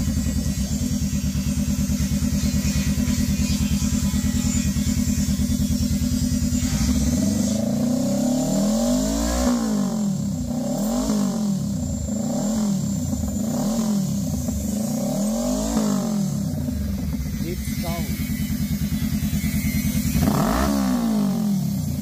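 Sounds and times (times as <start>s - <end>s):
motorcycle engine idling and revving: 0.0s - 22.0s.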